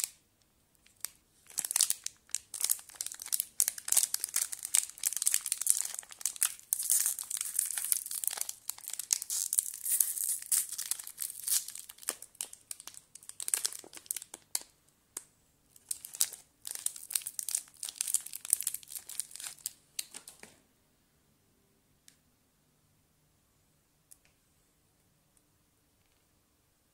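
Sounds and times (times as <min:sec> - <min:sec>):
plastic wrapper crinkling: 0:00.8 - 0:14.8, 0:15.7 - 0:20.6.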